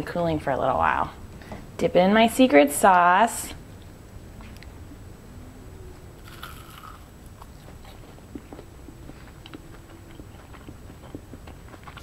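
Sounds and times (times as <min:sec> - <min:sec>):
person biting into food: 0:06.2 - 0:07.1
chewing with soft mouth clicks: 0:07.4 - 0:12.0.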